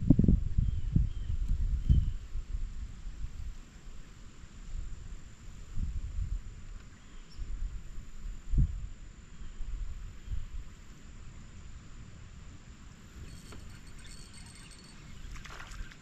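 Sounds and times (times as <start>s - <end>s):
wind buffeting microphone: 0.0s - 3.6s, 4.6s - 9.0s
faint steady hiss: 1.3s - 16.0s.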